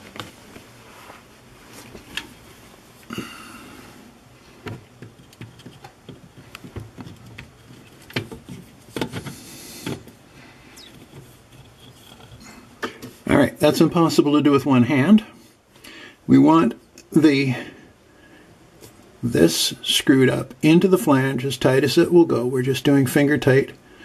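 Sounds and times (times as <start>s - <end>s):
plastic drain parts clicking and scraping: 4.6s - 10.1s.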